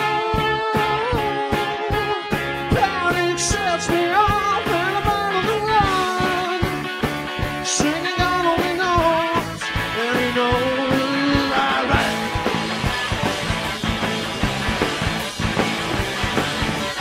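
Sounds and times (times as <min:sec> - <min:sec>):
person singing: 0:00.0 - 0:06.8, 0:07.6 - 0:12.5
drums: 0:00.0 - 0:17.0
electric guitar: 0:00.0 - 0:17.0.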